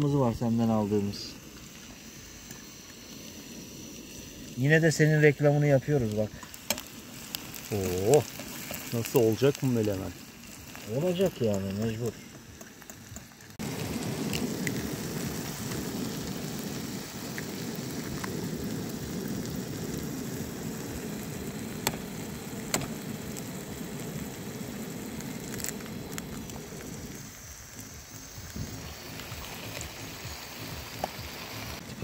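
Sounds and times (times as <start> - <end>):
vegetables sizzling in a frying pan: 0.4 - 32.0
sharp clicks: 22.7 - 23.0.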